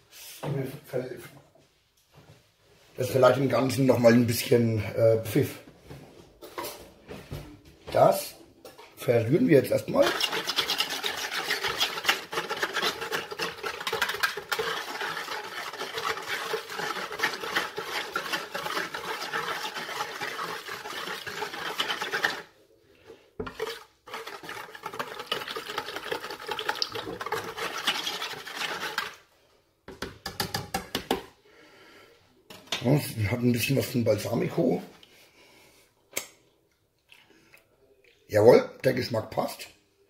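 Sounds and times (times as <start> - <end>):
utensil scraping a bowl: 9.6 - 22.6, 23.4 - 29.2.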